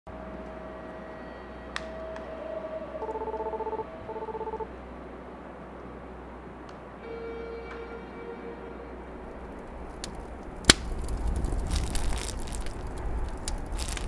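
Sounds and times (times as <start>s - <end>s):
low steady hum: 0.1s - 14.0s
rapid electronic beeps: 3.0s - 4.7s.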